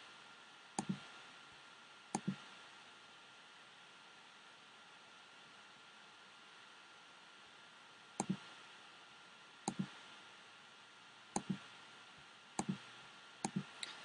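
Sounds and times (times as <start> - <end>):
faint steady hiss: 0.0 - 14.0
computer mouse button clicking: 2.2 - 2.4, 8.2 - 8.4, 9.7 - 9.9, 11.4 - 11.6, 12.6 - 12.8, 13.4 - 13.7.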